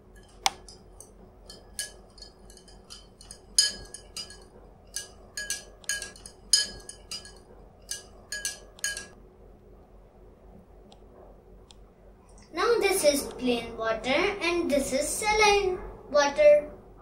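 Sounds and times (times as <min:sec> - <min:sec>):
metal spoon clinking glass: 0:01.4 - 0:09.2.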